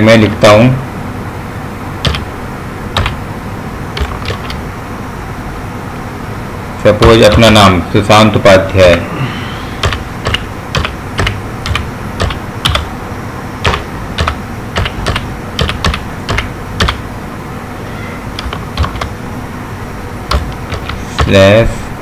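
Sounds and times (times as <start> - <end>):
keyboard keys clicking: 2.0 - 2.2, 3.0 - 3.2, 4.0 - 4.6, 9.8 - 12.9, 13.6 - 17.0, 18.4 - 19.2, 20.3 - 21.4.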